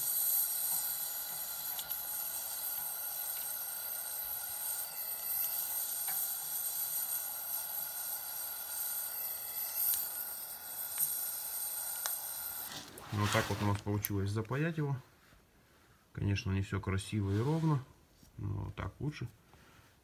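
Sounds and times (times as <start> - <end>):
gas torch flame hissing: 0.0 - 14.4.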